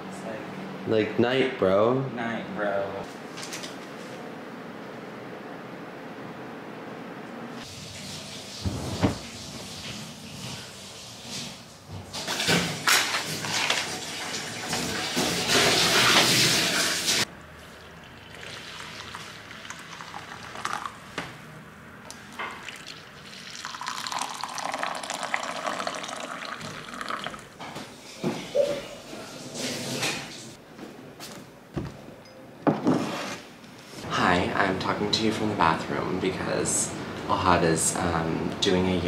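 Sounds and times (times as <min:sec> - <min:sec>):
coffee pouring into mugs: 0:17.7 - 0:21.1, 0:22.5 - 0:27.6.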